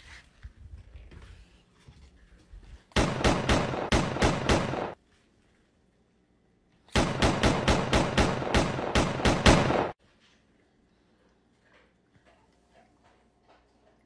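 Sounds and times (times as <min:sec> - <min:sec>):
machine-gun fire bursts: 0:03.0 - 0:05.0, 0:07.0 - 0:10.0.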